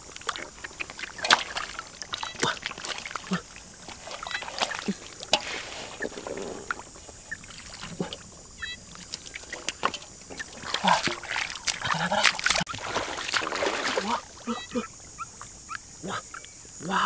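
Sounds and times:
muddy water splashing: 0.0 - 17.0.

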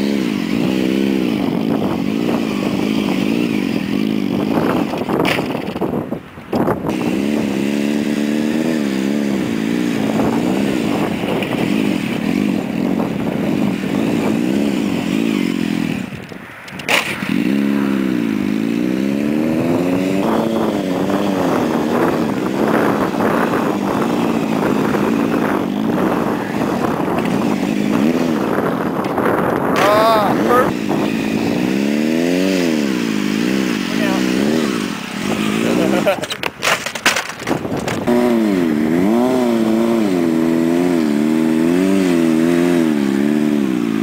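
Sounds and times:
motorcycle engine revving: 0.0 - 44.0
sharp click: 16.2 - 17.3.

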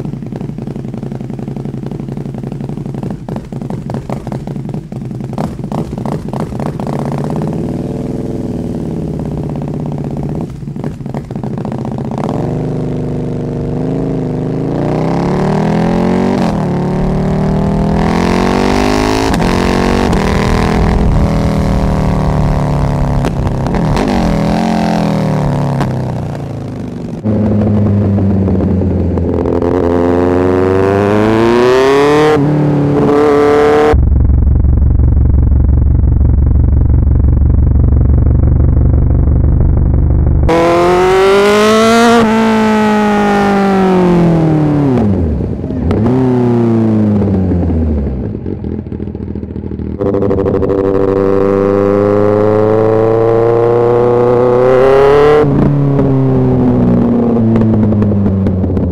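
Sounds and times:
motorcycle engine revving: 0.0 - 58.9.

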